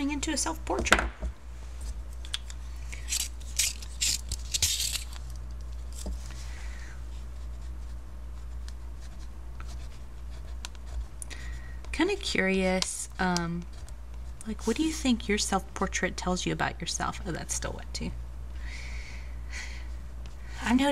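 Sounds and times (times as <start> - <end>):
steady low hum: 0.0 - 20.9
colour pencil scratching on paper: 7.4 - 11.1.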